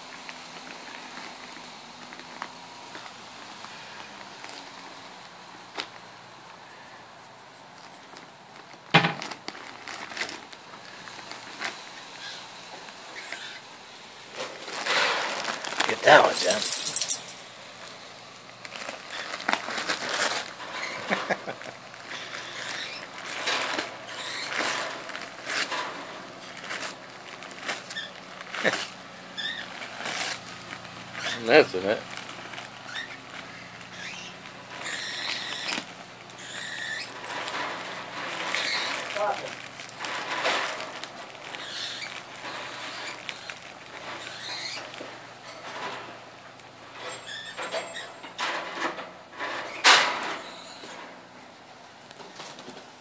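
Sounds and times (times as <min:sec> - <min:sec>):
dog ripping wrapping paper: 0:07.8 - 0:12.5, 0:14.3 - 0:46.0.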